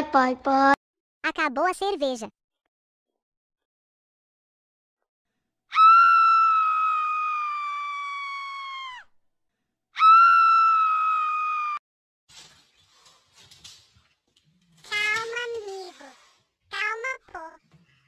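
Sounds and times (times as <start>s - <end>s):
high-pitched screams: 5.7s - 9.1s, 10.0s - 11.8s.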